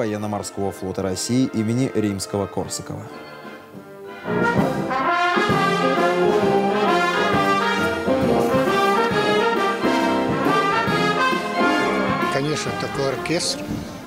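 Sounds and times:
trumpets and trombones: 0:00.3 - 0:14.0
military wind band playing: 0:00.4 - 0:14.0.

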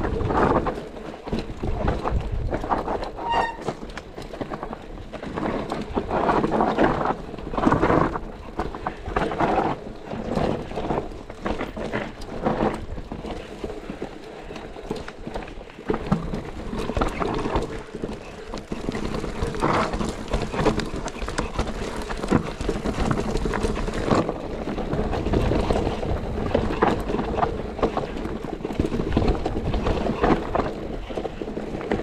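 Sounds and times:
bike rattling and clattering: 0:00.0 - 0:32.0
tyres rolling over dirt and rocks: 0:00.0 - 0:32.0
brief high squeak: 0:03.2 - 0:03.8.

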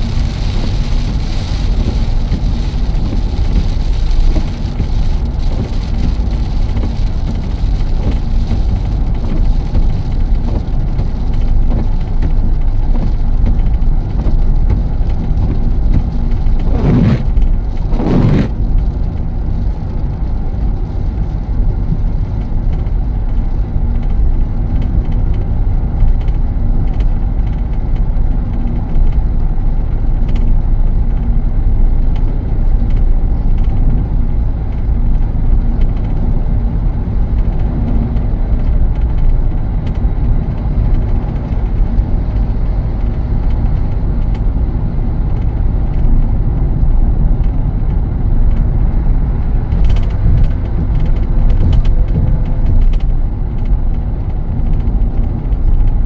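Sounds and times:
car road and engine rumble: 0:00.0 - 0:56.0.

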